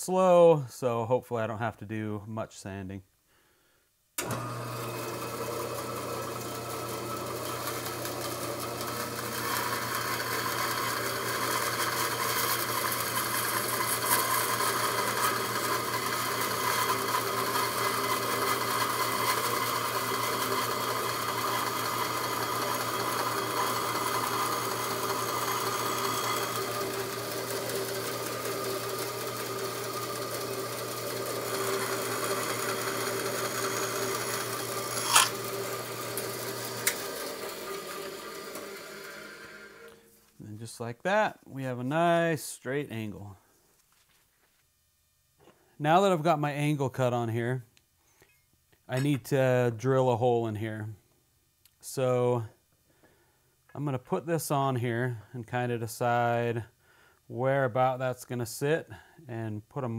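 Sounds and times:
bandsaw motor hum: 4.2 - 40.1
saw blade cutting wood: 7.5 - 37.1.

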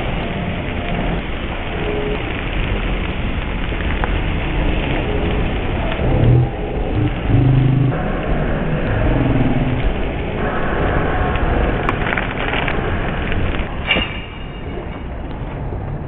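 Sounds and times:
motor traffic running: 4.2 - 13.8.

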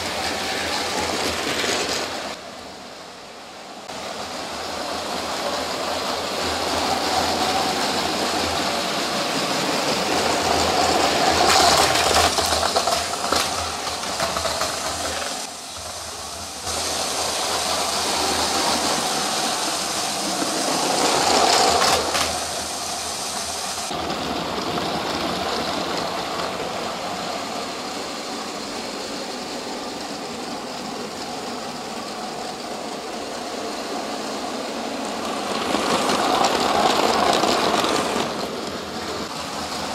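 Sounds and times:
plastic wheels rattling over track: 6.4 - 27.7, 33.6 - 39.9.

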